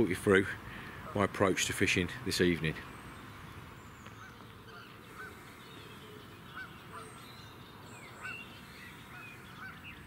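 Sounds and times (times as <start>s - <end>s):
low background hiss: 0.0s - 10.0s
songbird chirps: 0.0s - 10.0s
waterfowl honking: 4.2s - 5.5s, 6.5s - 7.3s.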